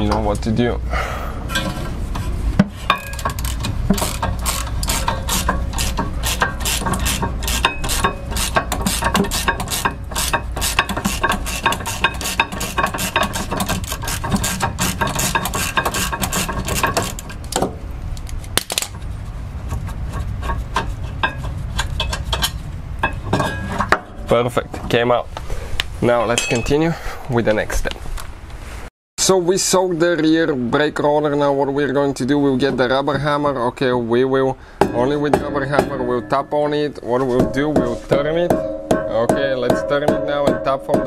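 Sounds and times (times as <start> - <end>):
metal handling: 1.5 - 19.1, 19.7 - 25.0, 26.2 - 26.9, 34.8 - 41.0
ratchet wrench clicking: 3.1 - 17.2
metal knock: 34.8 - 41.0.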